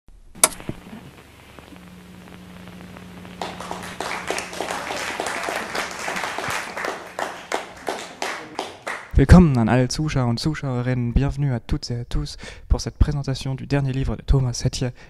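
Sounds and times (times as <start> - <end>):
low steady hum: 0.1 - 8.4
audience applause: 3.0 - 9.2.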